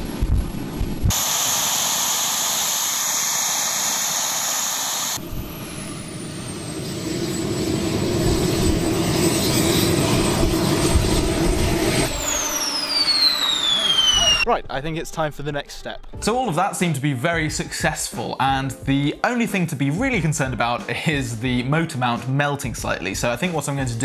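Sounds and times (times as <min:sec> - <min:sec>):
jet turbine roar and hiss: 0:00.0 - 0:14.5
turbine high whine: 0:00.0 - 0:14.5.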